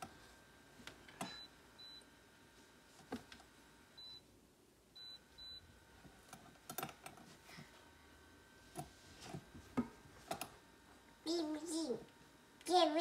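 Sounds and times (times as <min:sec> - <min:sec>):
humidifier button beeps: 0:01.2 - 0:02.1, 0:04.0 - 0:04.3, 0:05.0 - 0:05.7.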